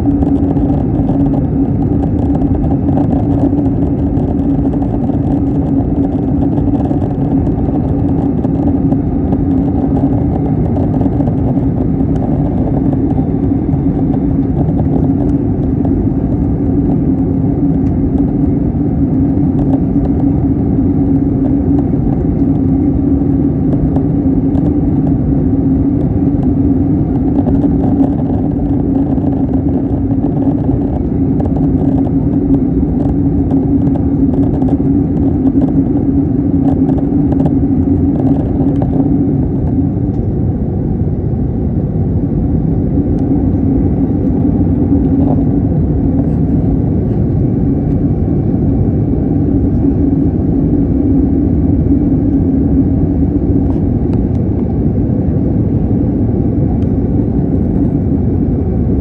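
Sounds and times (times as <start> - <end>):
engine and airflow rush: 0.0 - 59.0
steady low hum: 0.0 - 59.0.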